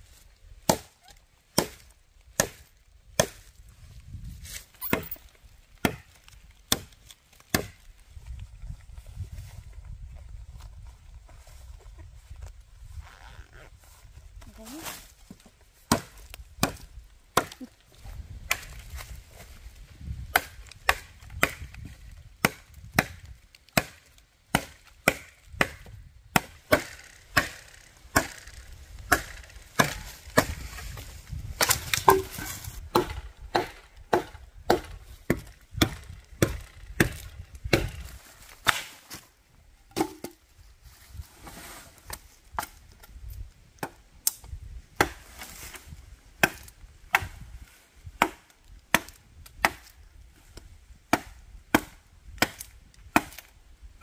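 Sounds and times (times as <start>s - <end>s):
machete chopping wood: 0.6s - 3.6s, 4.5s - 5.2s, 5.8s - 7.9s, 15.9s - 17.7s, 18.5s - 19.1s, 20.3s - 39.2s, 39.9s - 40.4s, 43.8s - 45.8s, 46.4s - 47.4s, 48.2s - 50.0s, 51.1s - 53.5s.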